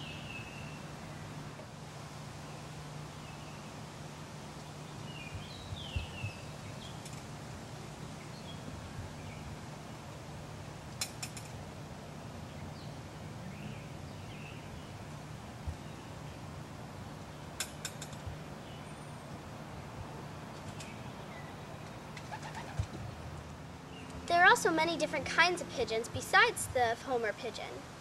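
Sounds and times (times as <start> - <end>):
small birds chirping: 4.6 - 7.2, 20.1 - 23.2.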